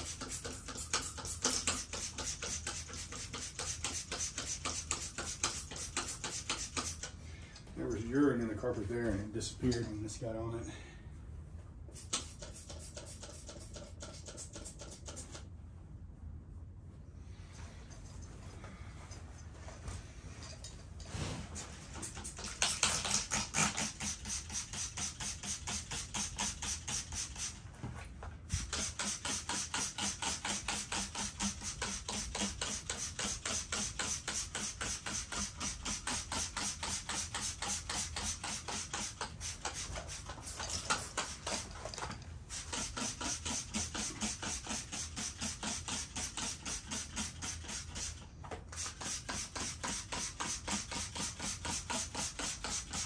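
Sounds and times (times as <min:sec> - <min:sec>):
spray bottle squirting: 0:00.0 - 0:07.2, 0:11.9 - 0:15.5, 0:21.9 - 0:27.6, 0:28.5 - 0:53.0.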